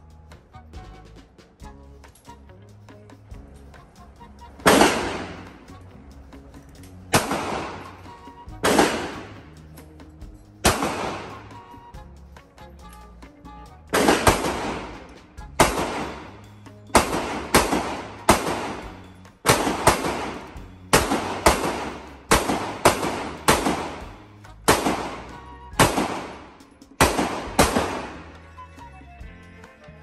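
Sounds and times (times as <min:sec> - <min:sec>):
handgun shots ringing indoors: 0:19.5 - 0:24.0.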